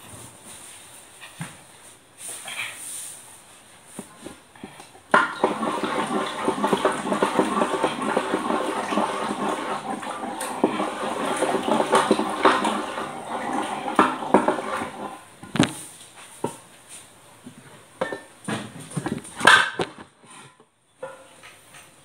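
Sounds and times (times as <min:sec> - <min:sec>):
wet churning of mashing: 0:05.1 - 0:15.2
masher knocking and scraping pan: 0:05.1 - 0:15.8.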